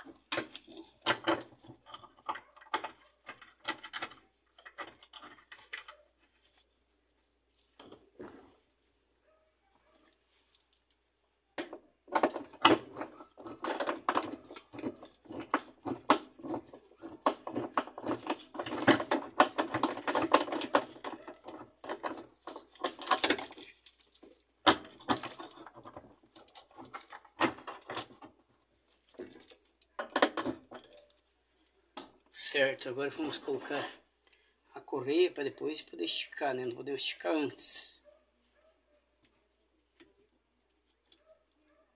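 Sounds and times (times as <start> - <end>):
metallic clicks knocks and rattles: 0.0 - 6.0, 11.6 - 28.4.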